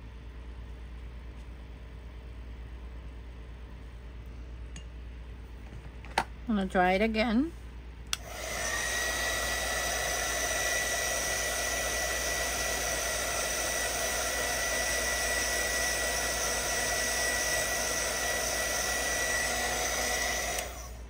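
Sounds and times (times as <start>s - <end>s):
electric dryer blowing air: 8.1s - 21.0s.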